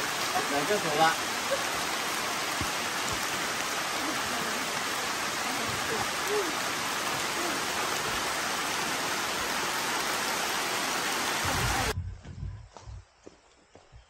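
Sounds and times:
rain hissing: 0.0 - 12.0
footsteps on dirt trail: 12.1 - 14.0.

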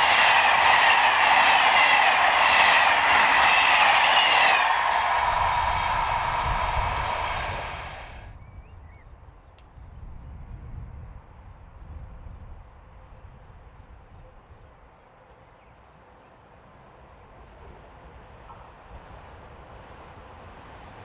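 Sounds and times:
passing electric train: 0.0 - 8.4, 9.6 - 21.0
low rumble: 1.1 - 8.3.

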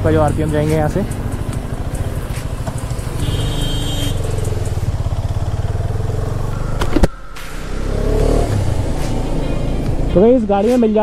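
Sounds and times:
motorcycle engine running: 0.0 - 10.6.

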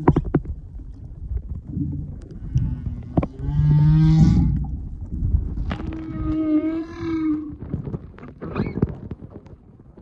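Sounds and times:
whale calls underwater: 5.7 - 7.8.

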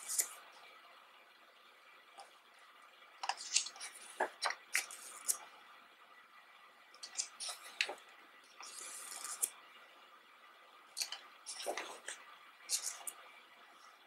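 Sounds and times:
pages turning: 3.2 - 5.4, 8.6 - 9.5, 11.5 - 13.1.

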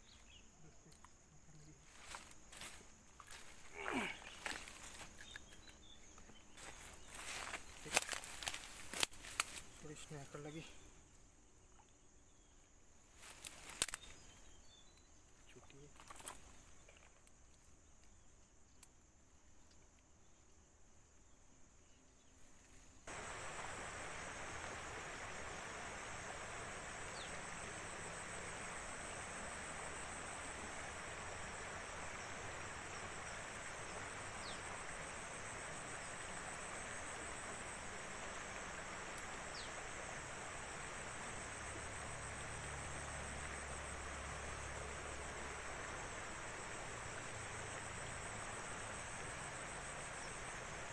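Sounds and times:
insects trilling: 0.0 - 50.9
even hiss: 1.6 - 11.4, 22.7 - 50.9.

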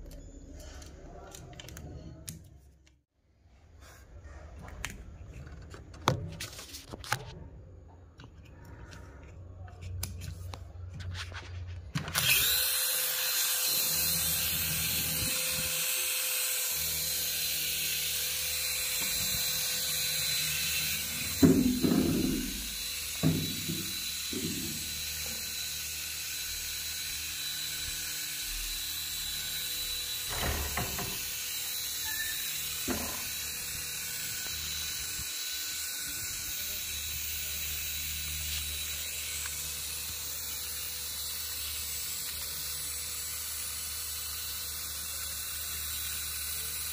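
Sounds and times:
rotor motors whirring: 11.9 - 46.9.

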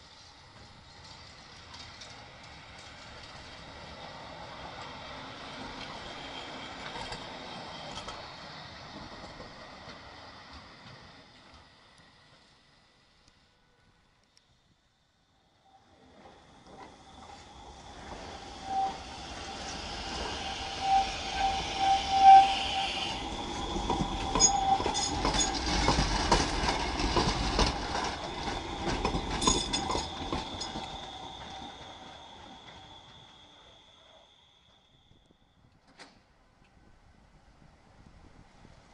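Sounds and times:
tram wheels clattering over rails: 0.2 - 12.6, 15.9 - 34.7
tram wheels squealing: 15.6 - 35.6.

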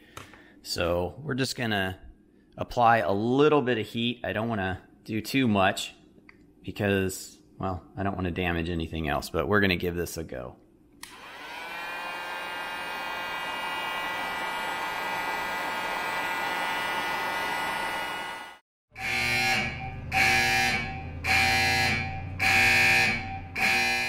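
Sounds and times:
heat gun blowing: 11.0 - 18.6
alarm buzzer blaring: 13.2 - 24.0.

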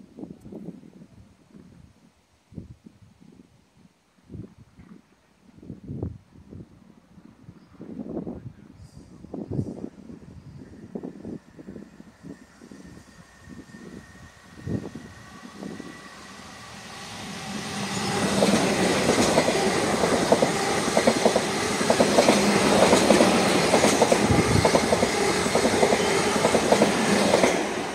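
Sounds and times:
train rumble: 8.9 - 27.9.

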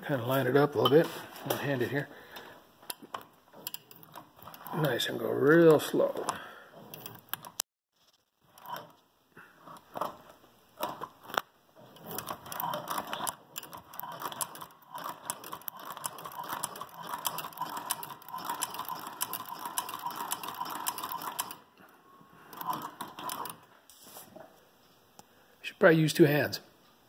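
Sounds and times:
sewing machine clicking: 3.5 - 5.0, 9.6 - 21.7, 22.5 - 23.7.

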